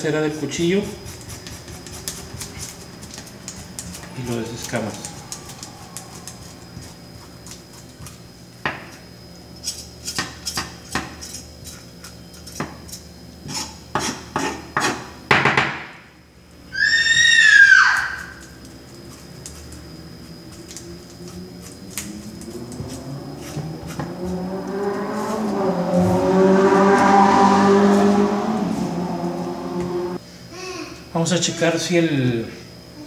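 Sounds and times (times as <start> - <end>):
knife scraping fish scales: 0.8 - 8.2, 9.6 - 15.0, 18.4 - 24.0
loud high falling cry: 16.7 - 18.4.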